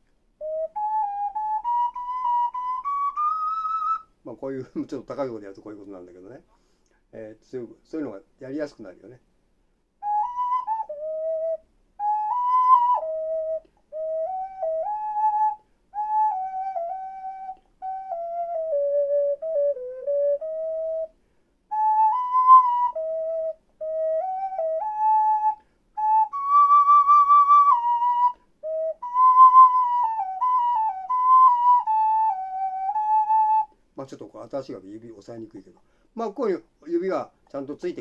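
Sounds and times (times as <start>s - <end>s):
ocarina melody: 0.0s - 4.2s, 10.0s - 34.8s
breaths: 6.4s - 7.1s, 21.1s - 21.7s, 25.6s - 25.9s, 35.8s - 36.2s.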